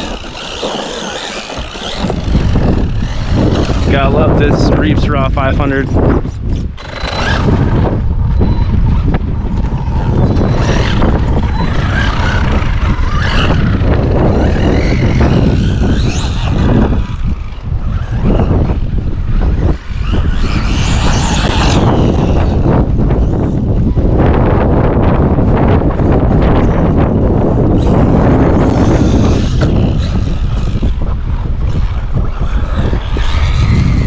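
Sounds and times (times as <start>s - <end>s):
toy truck electric motor whining: 0.0s - 4.6s, 6.3s - 23.6s, 27.7s - 34.0s
wind noise on microphone: 0.0s - 34.0s.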